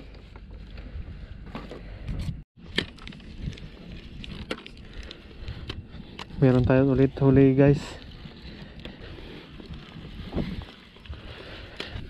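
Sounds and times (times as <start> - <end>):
wind rumble on microphone: 0.5 - 12.0
handling clicks and knocks on rocks: 1.5 - 6.7.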